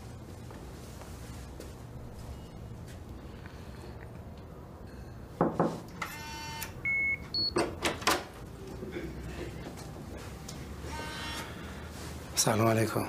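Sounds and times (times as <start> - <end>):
knocks on door: 5.4 - 5.8
electronic door lock buzz: 6.0 - 6.8, 10.9 - 11.6.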